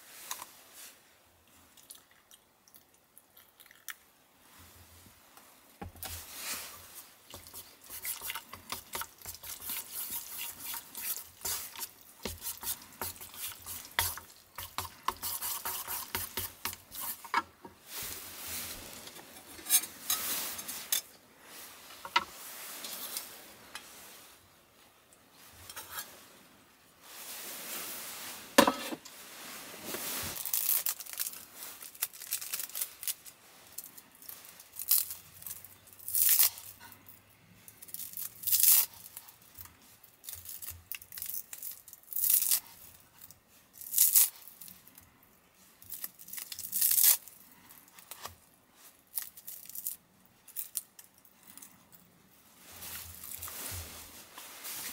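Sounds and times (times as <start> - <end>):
chopsticks scraping metal tin: 7.3 - 17.5, 19.1 - 21.1, 25.7 - 26.1.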